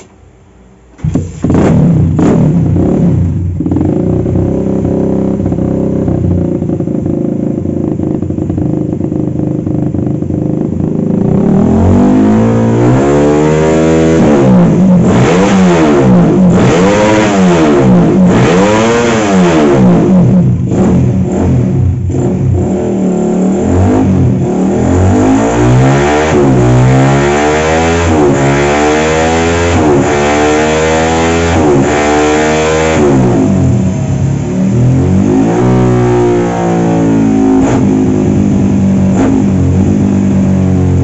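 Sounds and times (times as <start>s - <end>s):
motorcycle engine idling and revving: 0.9s - 41.0s.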